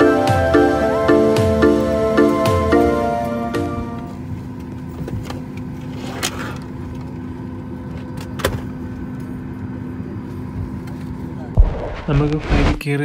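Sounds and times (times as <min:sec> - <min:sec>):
background music: 0:00.0 - 0:04.1
airliner cabin hum: 0:00.0 - 0:12.9.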